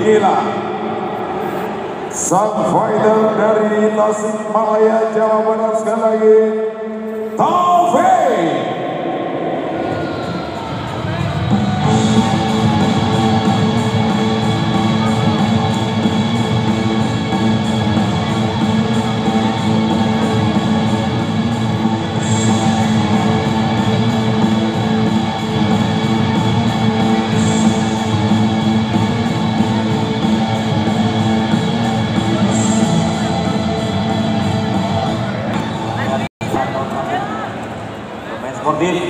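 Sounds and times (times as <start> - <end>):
loud rock music over loudspeakers: 10.1 - 36.8.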